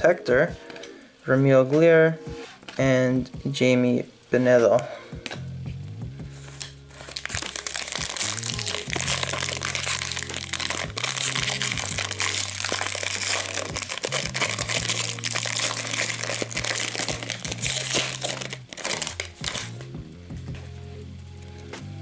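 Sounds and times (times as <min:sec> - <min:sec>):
background music with bass: 0:00.0 - 0:22.0
plastic wrapper crinkling: 0:06.6 - 0:19.9.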